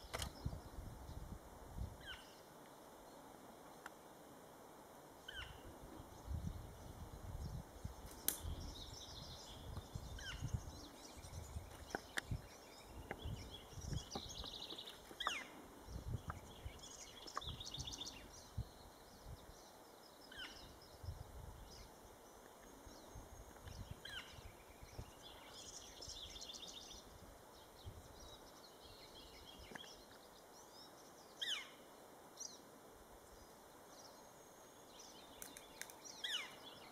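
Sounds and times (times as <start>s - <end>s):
songbirds chirping: 0.0s - 36.9s.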